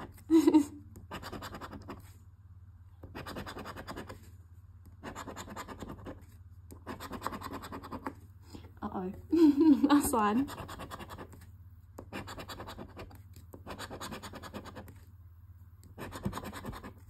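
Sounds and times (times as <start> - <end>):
scratching lottery ticket coating: 5.0 - 8.1, 10.4 - 11.4, 12.0 - 15.1, 15.8 - 17.0.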